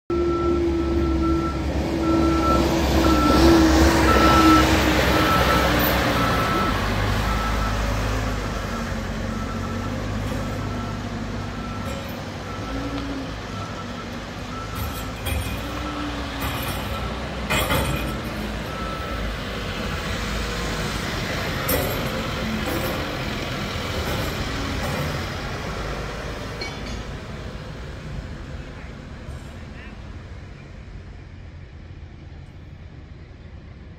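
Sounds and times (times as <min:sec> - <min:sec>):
reversing beeper: 0:00.1 - 0:19.4
diesel backhoe engines running: 0:00.1 - 0:33.9
steel plate clanking: 0:11.7 - 0:12.8, 0:14.6 - 0:19.1, 0:21.6 - 0:25.5, 0:26.6 - 0:27.2.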